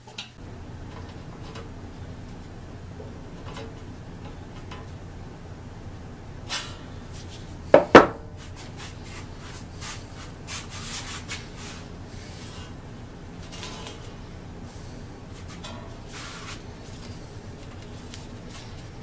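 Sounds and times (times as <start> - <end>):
light rubbing and scraping: 8.4 - 12.8, 15.3 - 18.9.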